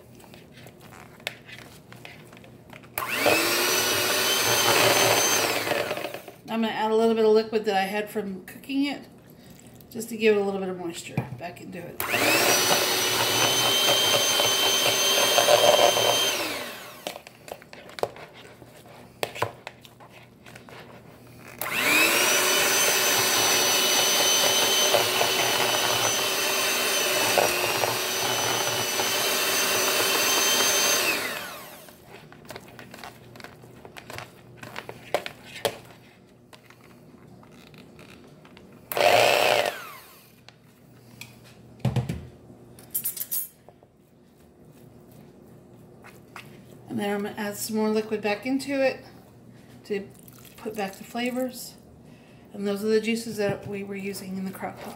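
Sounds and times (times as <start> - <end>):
electric hand mixer motor whining: 3.0 - 6.4, 12.0 - 17.4, 21.5 - 32.0, 38.9 - 40.4.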